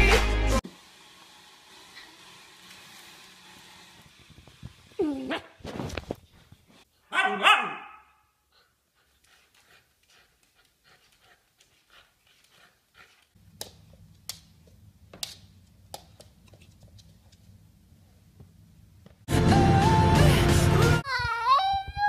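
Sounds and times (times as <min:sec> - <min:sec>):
dog panting: 0:08.5 - 0:13.4.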